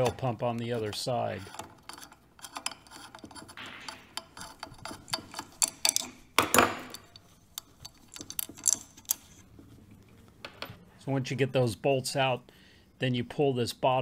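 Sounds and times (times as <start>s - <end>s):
socket clicking on metal bolts: 1.6s - 9.3s.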